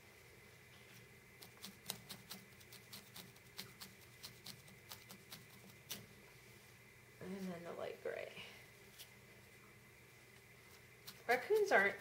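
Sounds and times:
felting needles poking through wool: 0:01.4 - 0:06.1, 0:10.7 - 0:12.0.

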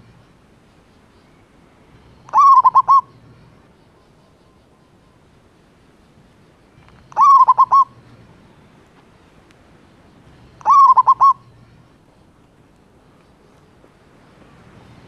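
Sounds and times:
dove cooing: 0:02.3 - 0:03.6, 0:07.1 - 0:08.0, 0:10.6 - 0:11.5.

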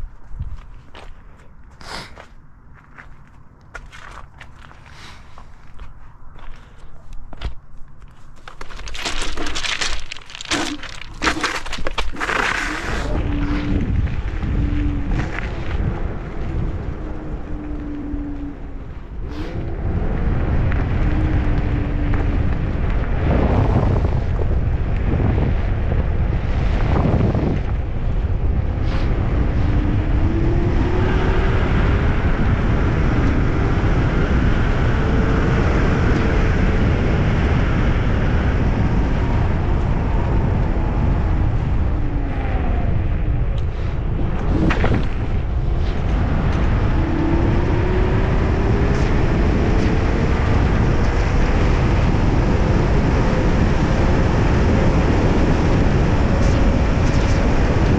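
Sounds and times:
wind rush on microphone: 0:00.0 - 0:57.9
tyre rumble on asphalt: 0:02.8 - 0:17.0, 0:43.8 - 0:52.8.

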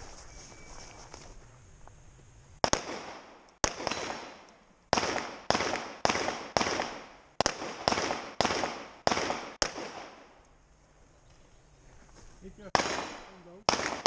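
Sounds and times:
pistol shots with echo: 0:02.6 - 0:10.3, 0:12.7 - 0:14.0.

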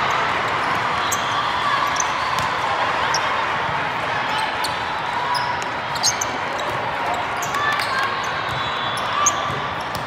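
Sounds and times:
sneaker squeaks on court: 0:04.4 - 0:10.0.

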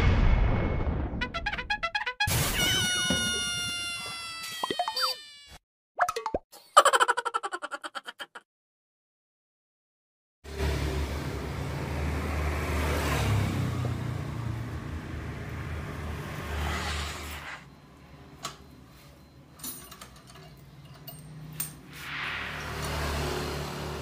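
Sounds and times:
engine running: 0:22.2 - 0:24.0.

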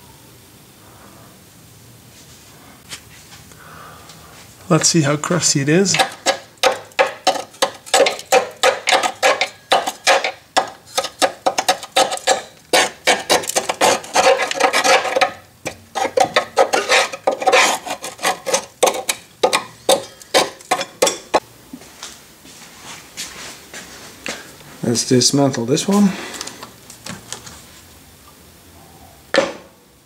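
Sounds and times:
metal tool scraping rusty metal: 0:05.5 - 0:21.4.

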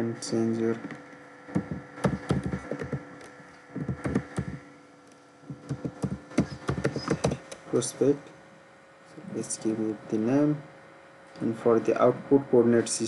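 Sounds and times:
electrical hum: 0:00.0 - 0:13.0
computer keyboard typing: 0:01.6 - 0:03.2, 0:03.8 - 0:04.6, 0:05.5 - 0:07.5.

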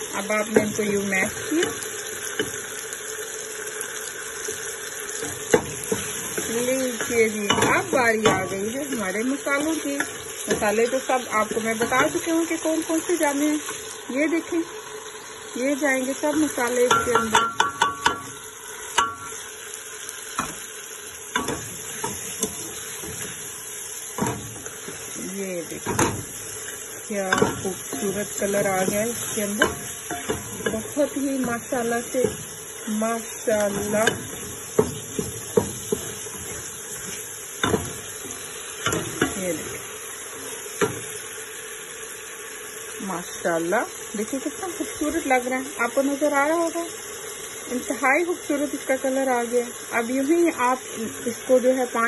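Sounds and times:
food sizzling in a pot: 0:00.0 - 0:52.0
spatula knocking against pan: 0:16.9 - 0:18.4, 0:33.7 - 0:36.7, 0:37.6 - 0:39.4.

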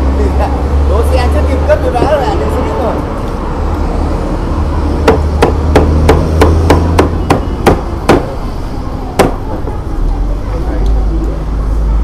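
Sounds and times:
cleaver chopping on wooden block: 0:05.0 - 0:08.3, 0:09.2 - 0:09.4.

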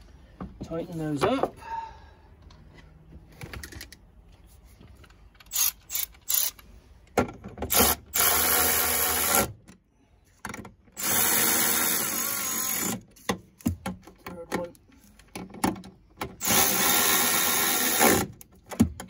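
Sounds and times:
electric ratchet running: 0:05.5 - 0:06.6, 0:07.7 - 0:09.5, 0:11.0 - 0:13.0, 0:16.4 - 0:18.3.

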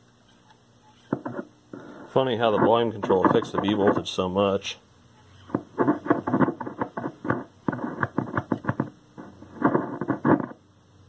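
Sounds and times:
radio static crackling: 0:00.8 - 0:10.6.

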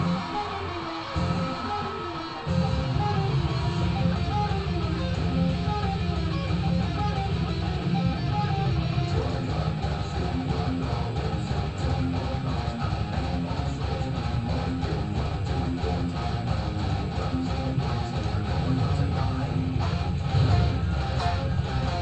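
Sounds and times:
electric guitar metal riff: 0:00.0 - 0:22.0
recorded heavy metal music: 0:00.0 - 0:22.0.

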